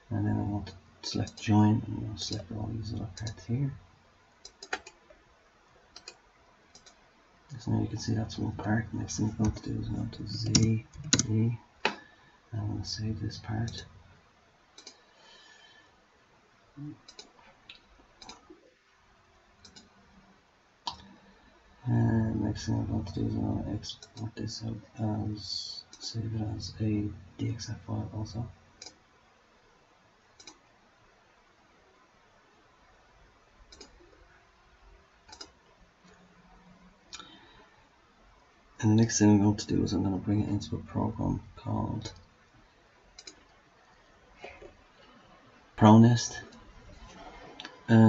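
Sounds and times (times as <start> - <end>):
faint hiss: 0.0 - 48.0
computer mouse clicking: 4.4 - 5.0, 5.9 - 7.0, 10.3 - 12.0, 14.8 - 15.0, 17.0 - 18.4, 19.6 - 19.9, 28.8 - 29.0, 30.4 - 30.6, 33.7 - 34.0, 35.3 - 36.2, 43.1 - 43.5.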